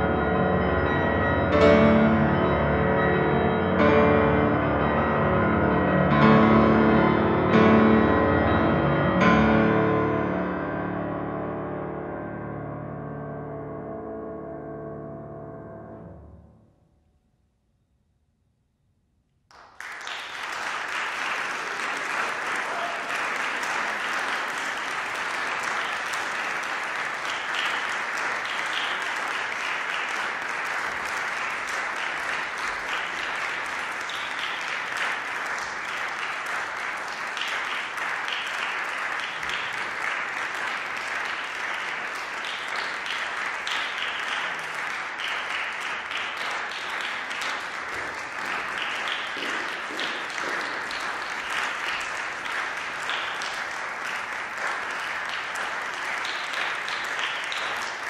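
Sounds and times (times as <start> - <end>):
audience applauding: 19.5 - 58.0.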